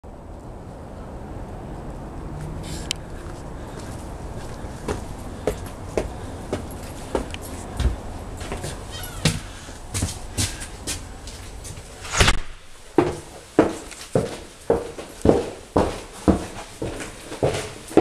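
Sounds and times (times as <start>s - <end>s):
footsteps on wooden stairs: 3.8s - 11.0s, 12.9s - 18.0s.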